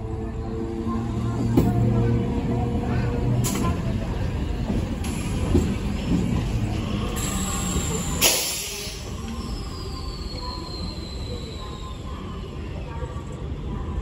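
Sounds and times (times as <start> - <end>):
train wheels rumbling and rattling: 1.3 - 9.7.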